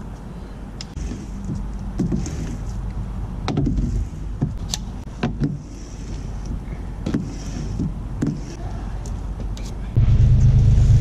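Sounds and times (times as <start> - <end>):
pole and tool head clicking: 4.6 - 4.9
low rumble: 9.9 - 11.0.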